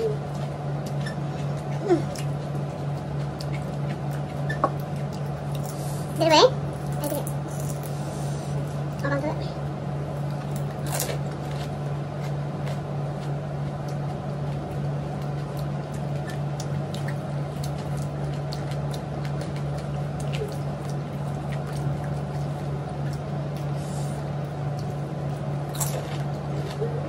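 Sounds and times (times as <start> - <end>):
steady low hum: 0.0 - 27.0
crunchy snack being eaten: 10.2 - 27.0.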